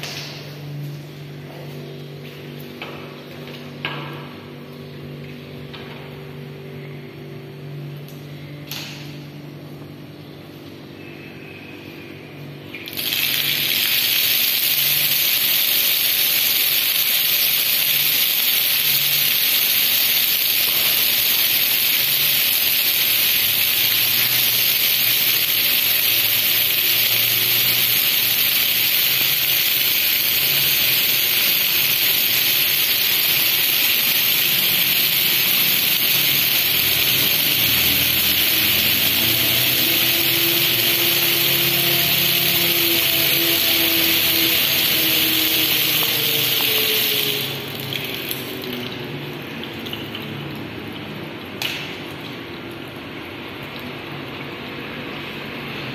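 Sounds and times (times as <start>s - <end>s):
faint low hums and tones: 0.0s - 12.9s.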